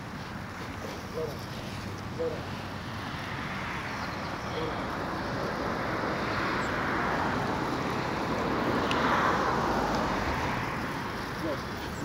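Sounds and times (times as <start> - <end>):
skate wheels rolling on asphalt: 5.1 - 12.0.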